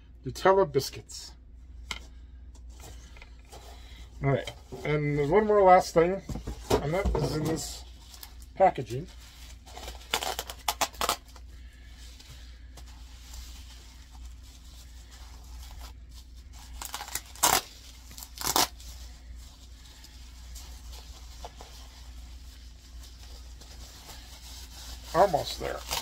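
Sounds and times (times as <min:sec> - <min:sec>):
packaging rustling: 0:06.4 - 0:26.0
tape ripping: 0:09.7 - 0:11.2, 0:16.7 - 0:18.8, 0:25.2 - 0:26.0.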